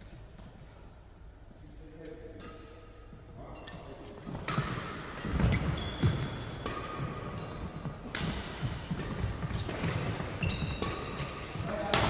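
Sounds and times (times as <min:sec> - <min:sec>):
shoes squeaking on court: 0:04.0 - 0:11.6
racket hitting shuttlecock: 0:04.2 - 0:12.0.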